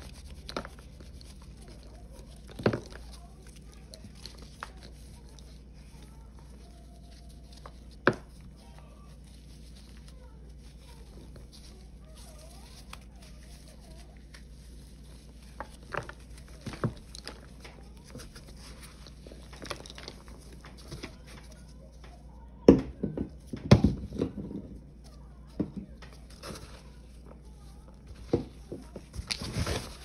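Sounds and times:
dried paste crumbling and crunching: 0:00.0 - 0:22.6.

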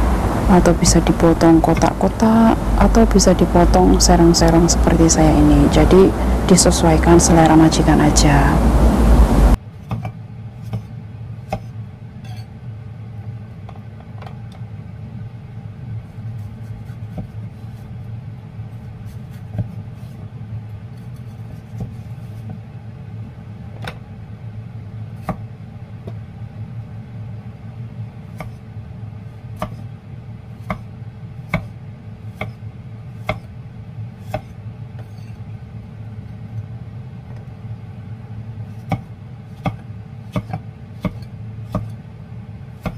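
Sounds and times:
low hum: 0:00.0 - 0:09.6
cleaver chopping on wooden block: 0:29.6 - 0:29.8, 0:30.6 - 0:30.9, 0:31.5 - 0:31.7, 0:33.2 - 0:33.5, 0:34.3 - 0:34.5, 0:38.8 - 0:42.0.

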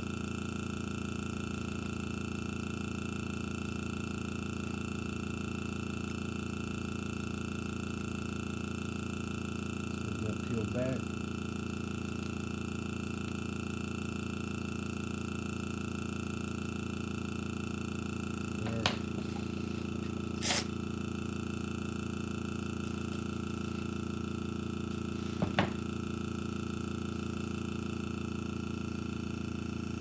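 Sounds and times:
air compressor humming: 0:00.0 - 0:30.0
brief air hiss: 0:20.4 - 0:20.8.

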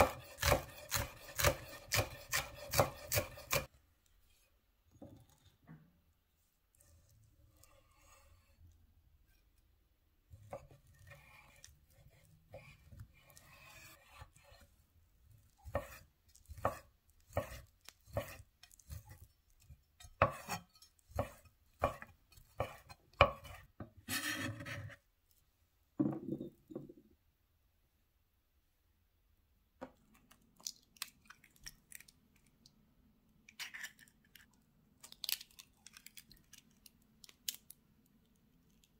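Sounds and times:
knife slicing sausage: 0:00.0 - 0:03.7, 0:10.4 - 0:14.7, 0:15.4 - 0:24.9
knife knocking on wooden board: 0:26.0 - 0:27.0.

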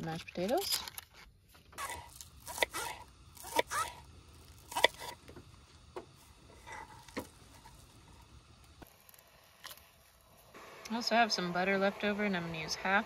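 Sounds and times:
knife slicing on wooden board: 0:01.8 - 0:04.0, 0:04.7 - 0:05.2.

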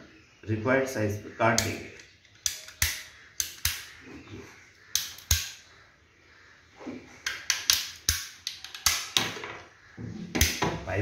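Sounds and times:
ratcheting pipe cutter clicking: 0:01.6 - 0:03.9, 0:07.2 - 0:09.0.

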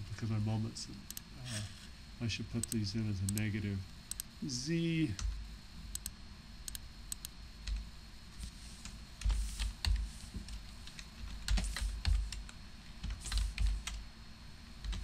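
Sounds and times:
typing on keyboard: 0:10.9 - 0:14.0.

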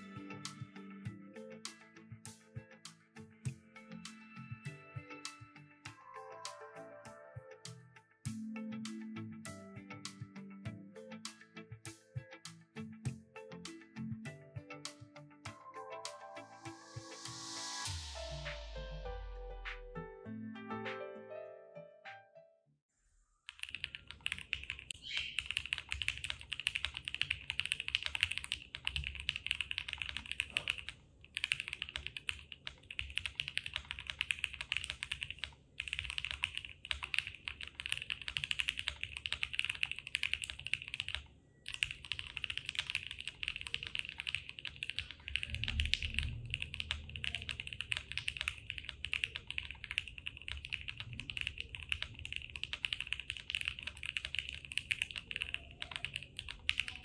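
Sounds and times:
mechanical keyboard typing: 0:23.5 - 0:57.0.

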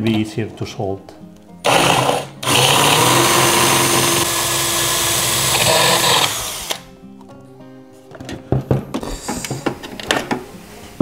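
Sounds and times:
cordless drill boring plastic: 0:01.7 - 0:06.8.

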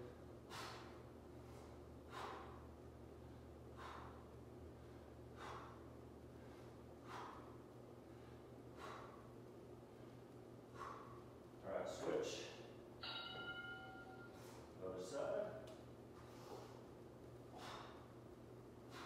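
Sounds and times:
man breathing sharply: 0:00.4 - 0:11.4, 0:13.8 - 0:14.8, 0:16.2 - 0:19.0.

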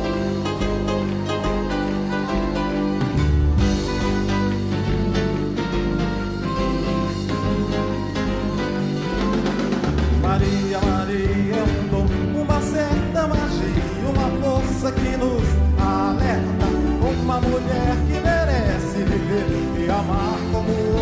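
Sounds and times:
live band playing: 0:00.0 - 0:21.0
man singing lead: 0:10.0 - 0:21.0.

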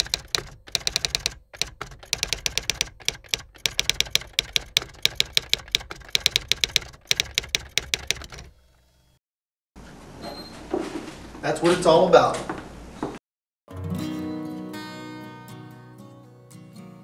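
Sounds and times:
typewriter keys clacking: 0:00.0 - 0:08.5.

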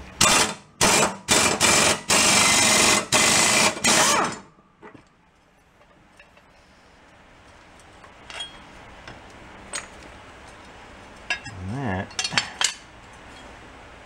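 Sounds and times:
metal blade clinking: 0:08.3 - 0:08.7.

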